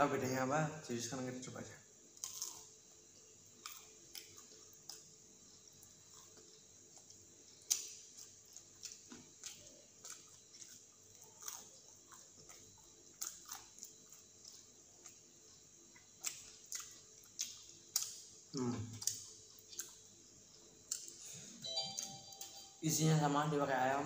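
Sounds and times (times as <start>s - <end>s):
wet chewing: 3.2s - 21.2s.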